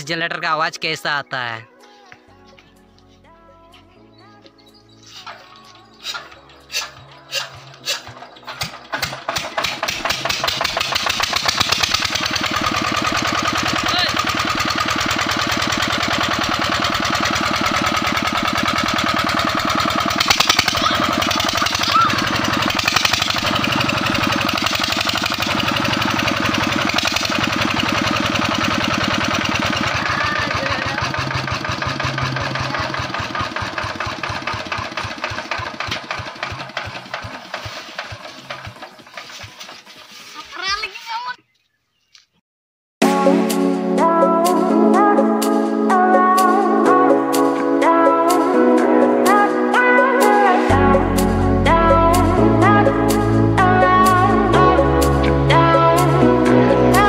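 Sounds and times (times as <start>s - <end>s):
diesel generator engine running: 4.2s - 40.1s, 50.6s - 57.0s.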